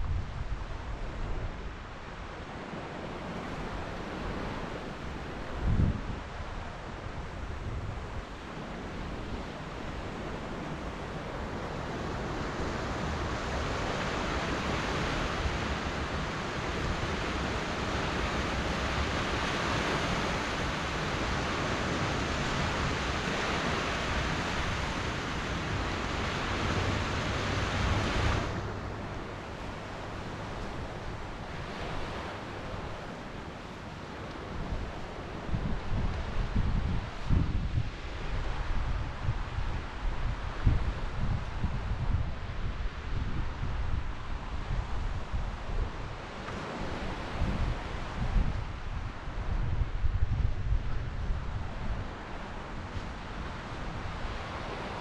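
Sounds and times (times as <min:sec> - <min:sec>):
ocean surf on sandy beach: 0:00.0 - 0:55.0
wind rumbling on microphone: 0:00.0 - 0:55.0.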